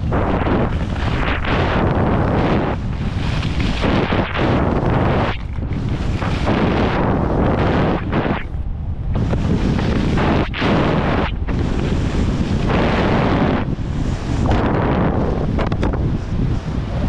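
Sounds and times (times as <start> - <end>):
skis scraping packed snow: 0.0 - 8.4, 9.2 - 15.6
wind buffeting microphone: 0.0 - 17.0.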